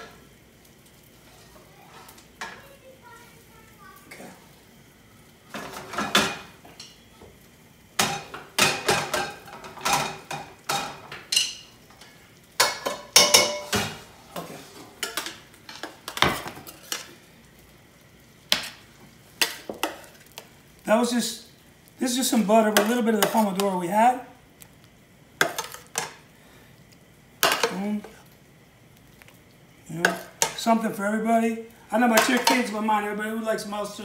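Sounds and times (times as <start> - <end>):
metal spoon scraping a pan: 25.4 - 26.2.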